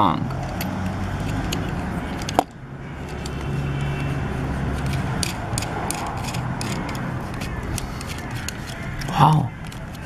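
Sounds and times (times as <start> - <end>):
fingers handling plastic toy: 4.6 - 10.0.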